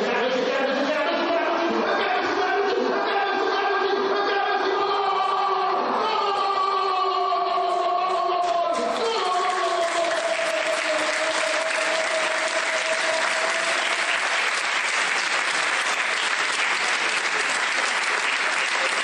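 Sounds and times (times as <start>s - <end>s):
audience applauding: 5.6s - 19.0s.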